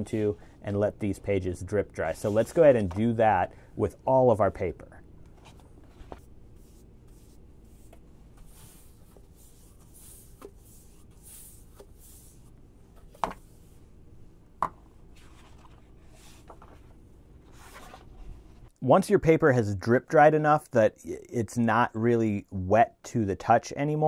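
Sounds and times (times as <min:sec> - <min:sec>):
paintbrush swishing on paper: 0:02.2 - 0:02.7, 0:05.4 - 0:12.6.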